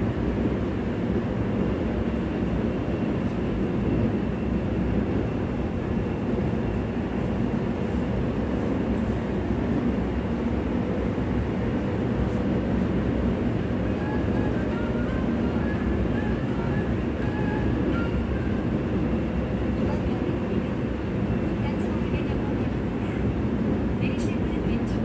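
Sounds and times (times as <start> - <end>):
train interior rumble: 0.0 - 25.0.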